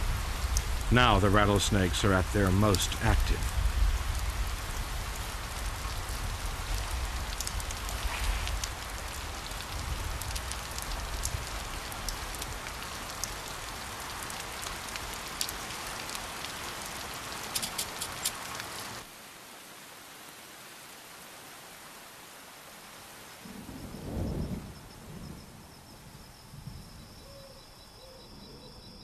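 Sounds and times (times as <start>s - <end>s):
steady hiss with crackles: 0.0s - 29.0s.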